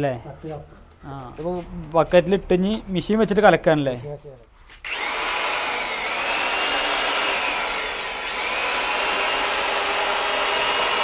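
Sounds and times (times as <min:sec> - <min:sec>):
electric mixer motor whine: 0:04.8 - 0:11.0.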